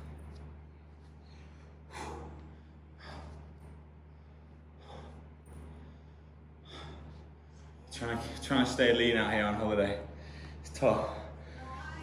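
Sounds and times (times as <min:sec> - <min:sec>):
man breathing hard: 0:01.1 - 0:08.4, 0:10.1 - 0:11.8.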